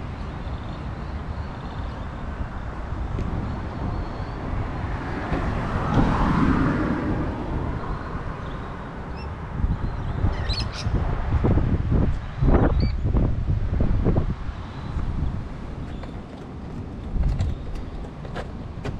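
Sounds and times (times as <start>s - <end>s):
low traffic rumble: 0.0s - 18.9s
wind: 0.0s - 18.9s
car passing by: 2.9s - 9.1s.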